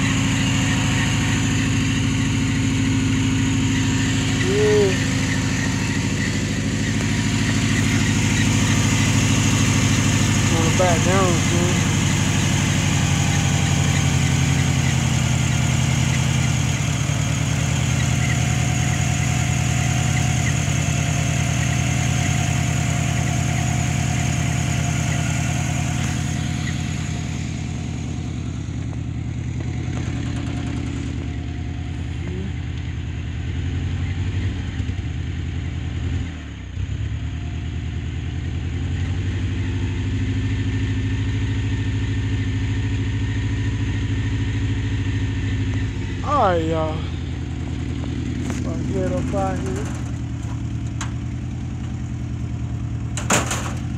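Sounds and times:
pickup engine idling: 0.0s - 53.9s.

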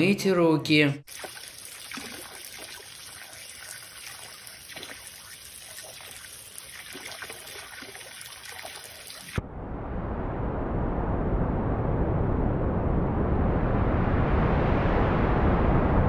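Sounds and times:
hose water splashing into basin: 1.1s - 9.4s
small uneven water splashes: 1.1s - 9.4s.

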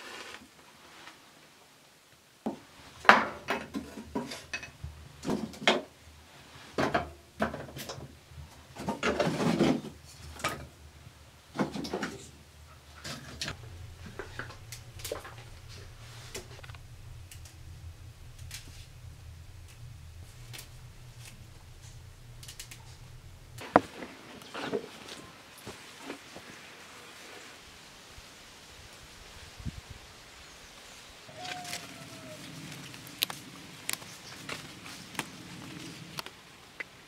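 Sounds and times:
steady low hum: 2.3s - 31.2s
clattering scrape: 2.9s - 10.8s.

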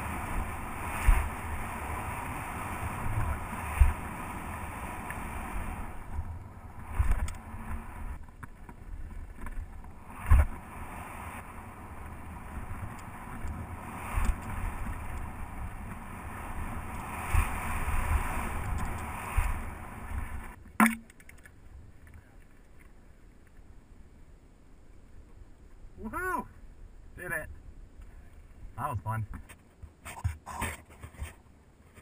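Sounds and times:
wind rushing over microphone: 0.0s - 20.6s
dull thumps from trail bumps: 0.0s - 21.3s
tyres rumbling on dirt trail: 0.0s - 32.0s.

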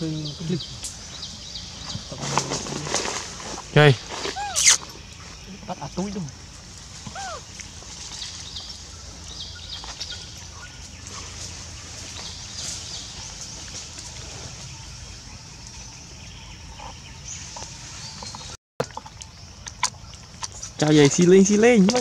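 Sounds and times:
steady high-pitched hiss: 0.0s - 16.4s
bird calls: 0.0s - 18.6s.

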